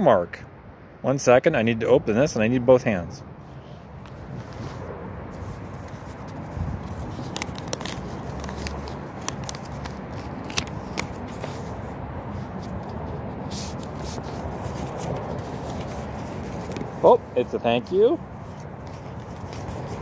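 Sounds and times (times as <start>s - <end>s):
paper envelope crackling and rustling: 4.1s - 17.1s, 18.4s - 20.0s.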